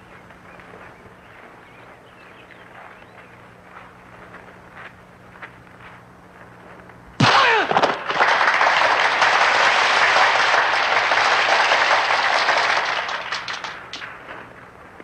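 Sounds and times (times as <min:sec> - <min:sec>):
crowd cheering and clapping: 0:07.3 - 0:14.0.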